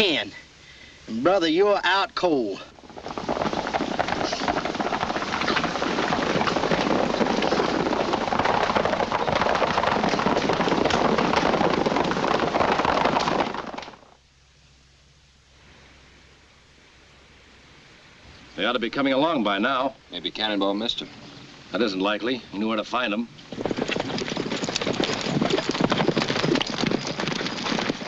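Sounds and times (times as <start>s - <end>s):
faint soundtrack hiss: 0.0s - 23.8s
horses galloping on dirt: 2.2s - 14.2s, 21.8s - 28.0s.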